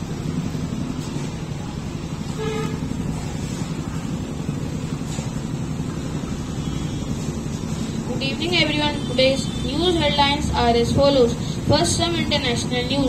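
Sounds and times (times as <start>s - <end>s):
road traffic rumble: 0.0s - 13.0s
vehicle horn toot: 2.3s - 2.9s.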